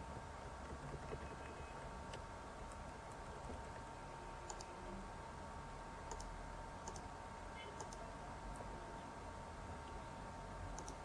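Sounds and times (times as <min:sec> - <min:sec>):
faint background hiss and hum: 0:00.0 - 0:11.0
computer mouse clicking: 0:04.5 - 0:04.7, 0:06.1 - 0:07.1, 0:07.8 - 0:08.0, 0:10.7 - 0:11.0.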